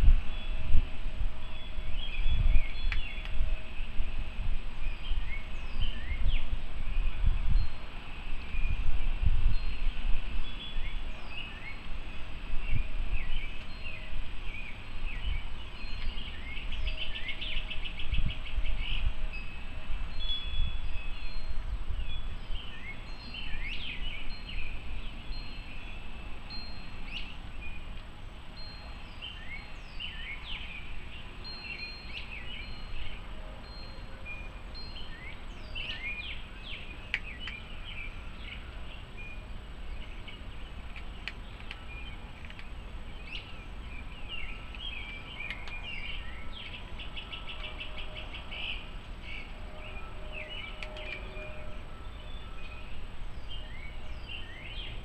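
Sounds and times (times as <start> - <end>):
wind buffeting microphone: 0.0 - 55.0
small birds chirping: 1.4 - 55.0
metal wind chimes ringing: 25.2 - 27.1, 28.5 - 29.1.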